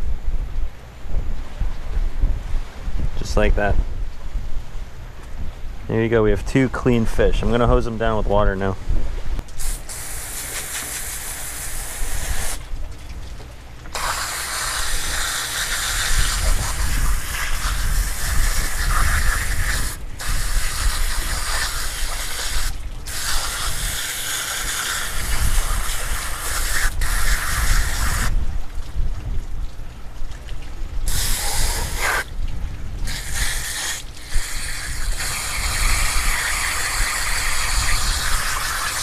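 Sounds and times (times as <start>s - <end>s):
hose nozzle spraying water: 9.5s - 12.7s, 13.9s - 28.4s, 31.1s - 32.3s, 33.0s - 39.0s.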